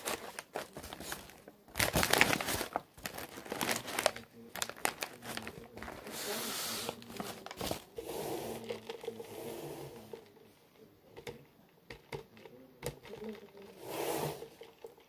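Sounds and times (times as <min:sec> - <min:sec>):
paper bag rustling and crinkling: 0:00.0 - 0:10.3.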